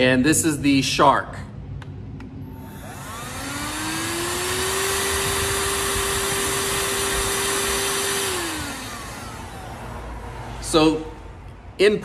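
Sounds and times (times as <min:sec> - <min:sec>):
handheld vacuum running: 0:02.5 - 0:10.4.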